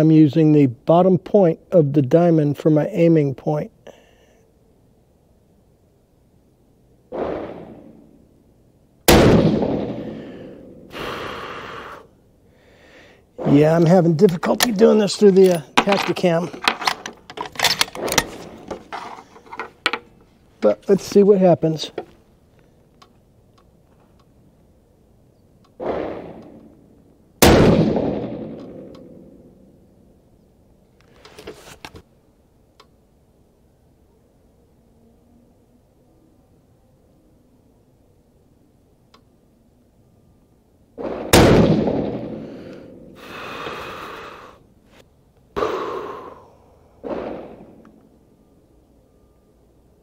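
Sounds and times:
rifle shots: 7.1 - 8.1, 9.1 - 10.5, 25.8 - 26.7, 27.4 - 29.4, 41.0 - 43.1, 47.0 - 47.8
quieter sharp bangs: 7.1 - 8.3, 9.0 - 11.0, 25.7 - 29.7, 41.0 - 43.2, 47.0 - 48.0.

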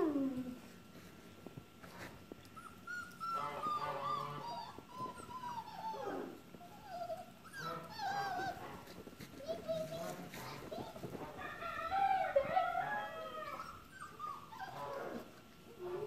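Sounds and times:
puppy whining and yelping: 2.4 - 8.8, 13.2 - 15.4.

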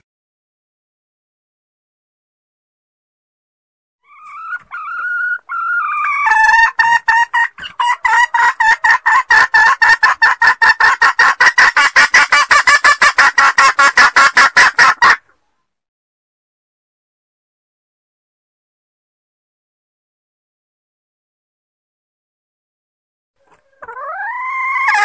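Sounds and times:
hen calling and clucking: 4.0 - 15.6, 23.4 - 25.0.

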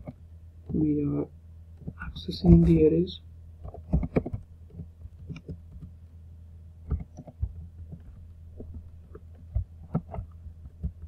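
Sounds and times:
steady low hum: 0.0 - 11.0
soft keyboard keystrokes: 3.6 - 6.0.

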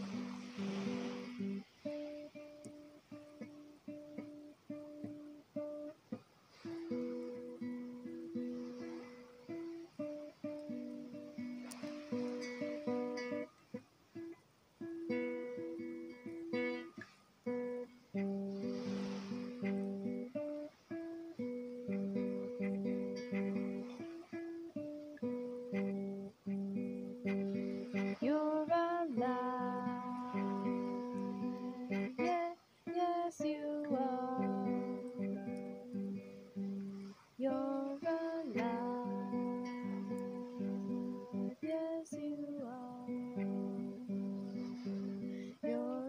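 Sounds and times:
woman singing wordless notes: 0.0 - 1.7, 27.2 - 46.0
acoustic guitar plucked: 0.0 - 46.0.

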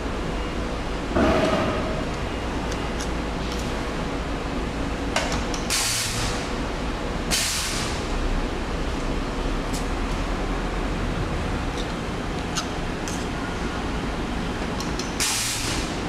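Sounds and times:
machine hum: 0.0 - 7.3
press clunk: 1.2 - 2.2
air hissing from press: 5.7 - 6.5, 7.3 - 8.1, 15.2 - 16.0.

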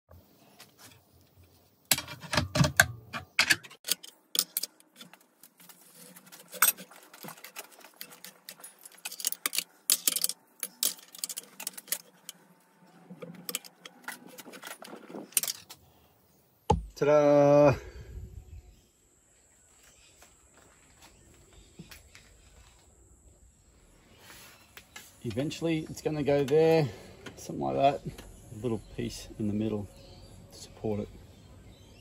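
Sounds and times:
steel parts clinking on steel table: 8.8 - 12.3.

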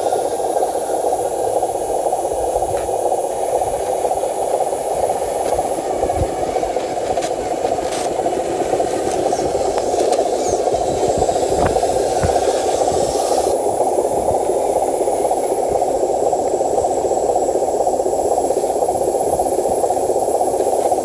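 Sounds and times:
small motor whirring: 5.4 - 13.6.

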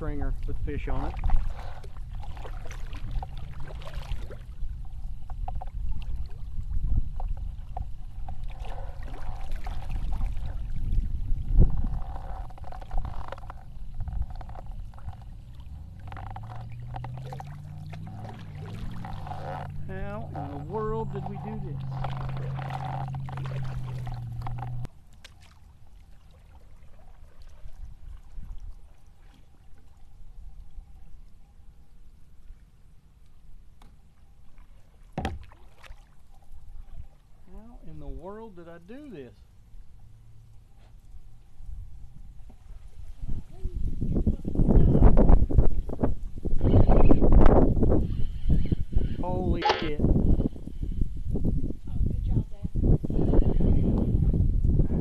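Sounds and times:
steady low hum: 0.0 - 24.9
steady low rumble: 0.0 - 24.9
water drips and splashes: 0.0 - 39.2
paddle dipping through water: 0.3 - 37.6, 39.4 - 44.0.

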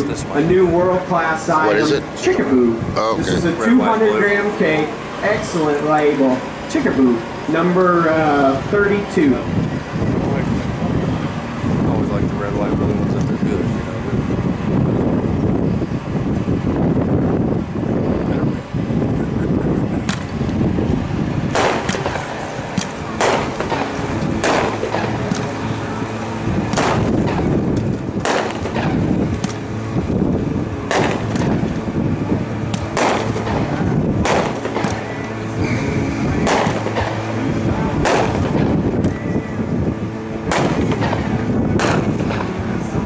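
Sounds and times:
wind rumbling on microphone: 0.0 - 43.0
fireworks bangs: 21.4 - 25.6, 26.6 - 27.6, 28.2 - 29.6, 30.8 - 31.8, 32.7 - 35.1, 36.4 - 37.4, 38.0 - 38.8, 40.5 - 42.6.

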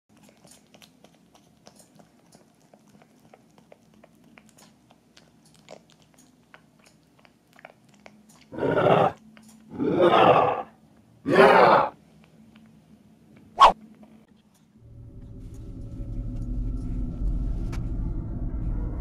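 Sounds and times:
puppy mouth clicks and smacks: 0.1 - 8.5.

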